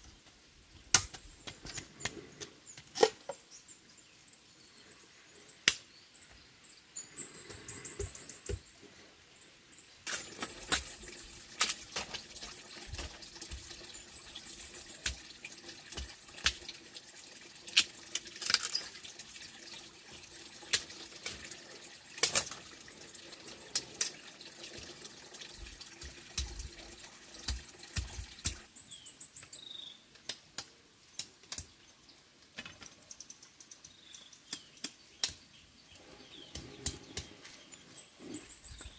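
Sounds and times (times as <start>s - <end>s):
water running and splashing: 10.1s - 28.7s
clicks and knocks in water: 15.0s - 16.7s, 27.4s - 28.6s.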